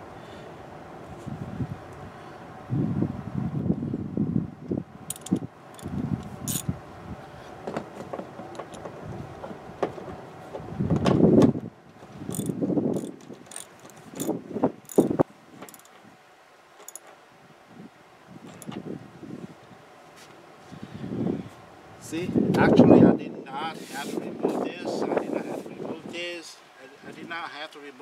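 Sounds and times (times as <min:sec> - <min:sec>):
metal hardware clinking: 0:05.1 - 0:05.9, 0:06.5 - 0:06.7, 0:08.5 - 0:08.8, 0:12.3 - 0:16.0, 0:16.8 - 0:17.1, 0:18.5 - 0:18.8
ratchet wrench turning: 0:05.1 - 0:05.9, 0:06.5 - 0:06.7, 0:12.3 - 0:15.9, 0:16.8 - 0:17.0, 0:18.5 - 0:18.8.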